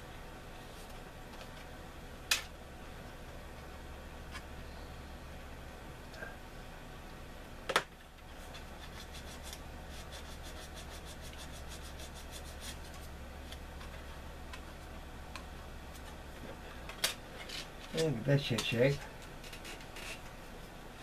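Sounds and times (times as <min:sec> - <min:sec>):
sanding strokes on plastic: 0:08.6 - 0:13.1.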